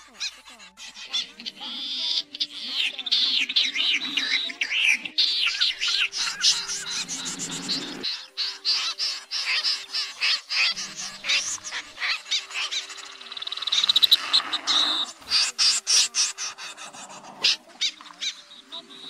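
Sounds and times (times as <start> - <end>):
snipe harsh calls: 0.0 - 19.0
bird rattling trill: 5.3 - 18.4.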